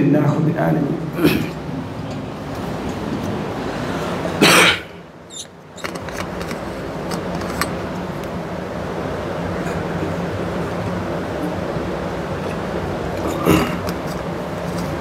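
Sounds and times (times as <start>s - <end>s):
fan hum: 0.0s - 15.0s
person coughing: 1.2s - 1.6s, 4.4s - 5.0s, 13.2s - 13.9s.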